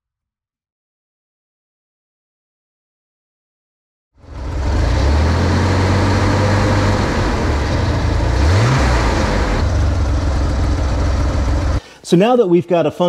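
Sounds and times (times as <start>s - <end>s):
car engine idling: 4.2s - 11.9s.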